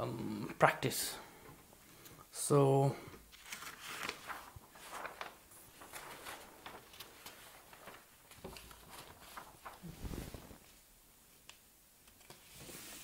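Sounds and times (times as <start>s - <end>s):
paper sheet rustling: 3.1s - 13.0s.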